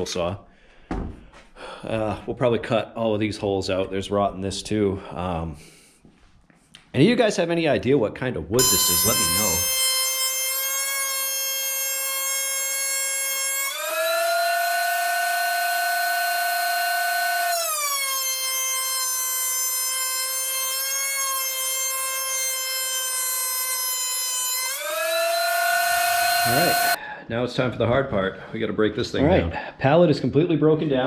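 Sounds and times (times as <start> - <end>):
thickness planer motor whine: 8.6 - 27.0.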